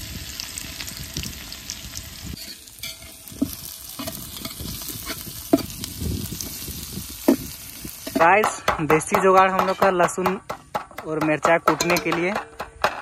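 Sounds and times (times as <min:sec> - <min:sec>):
onions sizzling in hot oil: 0:00.0 - 0:10.8
metal spatula scraping pot: 0:02.4 - 0:05.8
spatula knocking on pot: 0:08.1 - 0:13.0.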